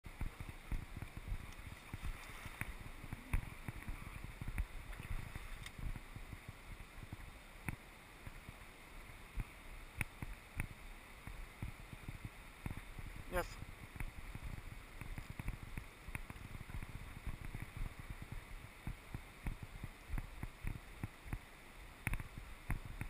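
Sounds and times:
wind thumps on microphone: 0.1 - 8.6, 9.3 - 23.0
river water running: 0.1 - 23.0.

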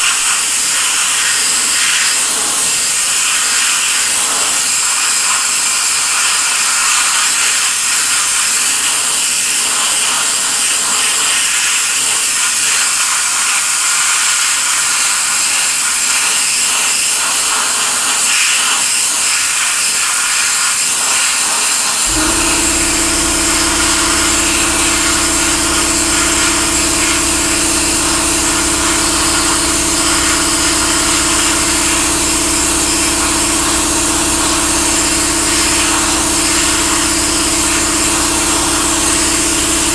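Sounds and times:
sandblaster nozzle hissing: 0.0 - 17.7, 18.3 - 39.9
low motor hum: 22.0 - 39.9.

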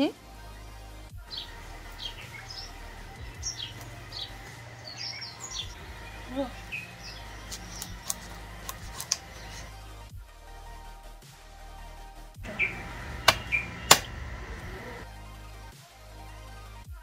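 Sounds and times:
small birds chirping: 1.2 - 9.8, 12.5 - 15.0
faint steady hum: 1.3 - 9.7, 12.4 - 15.0
knife clicking on wood: 7.5 - 9.3.

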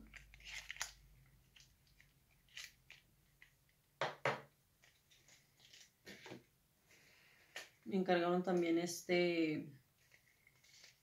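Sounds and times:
light clicks and crinkles: 0.0 - 3.8, 4.8 - 6.2, 10.0 - 11.0.

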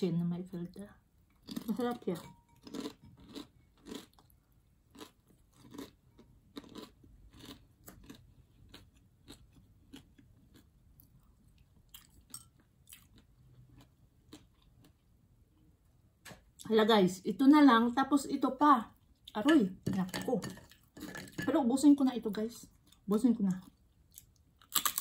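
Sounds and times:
faint chewing: 2.5 - 15.7.

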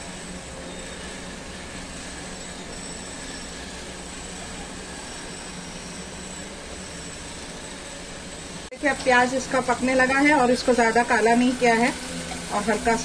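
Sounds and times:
paste sizzling in oil: 8.8 - 13.0.

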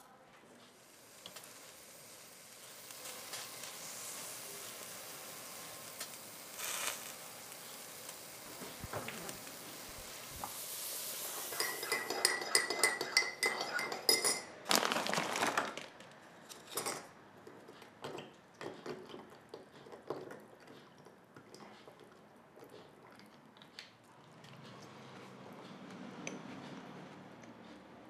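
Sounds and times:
metal spoon clinking against cup: 11.5 - 14.5
spoon tapping a jar: 11.6 - 14.4.

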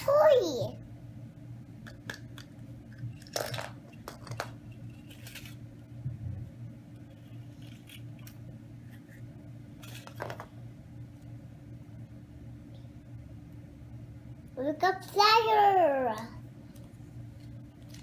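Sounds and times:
steady low hum: 0.0 - 18.0
plastic capsule clicking and crinkling: 1.9 - 5.6.

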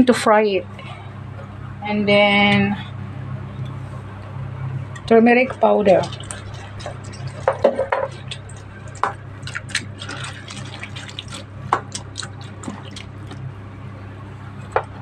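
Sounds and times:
hand sloshing vegetables in liquid: 5.6 - 13.5.

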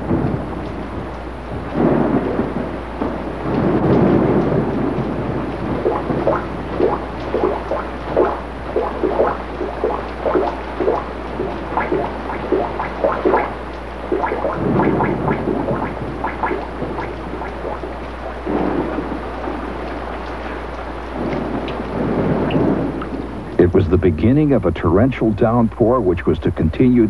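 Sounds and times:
heavy rain hissing: 0.0 - 26.7
drips plinking into pans: 5.9 - 17.9.

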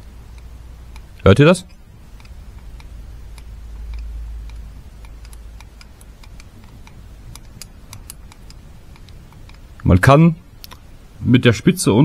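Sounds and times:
screw tip ticking on metal: 0.3 - 9.6.

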